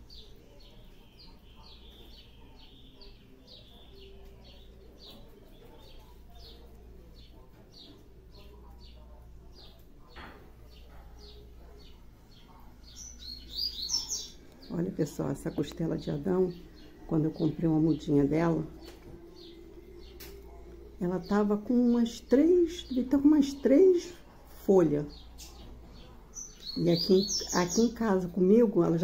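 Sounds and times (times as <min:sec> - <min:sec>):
small bird chirping: 0:00.0 - 0:24.3, 0:25.0 - 0:28.1
low steady hum: 0:10.6 - 0:29.0.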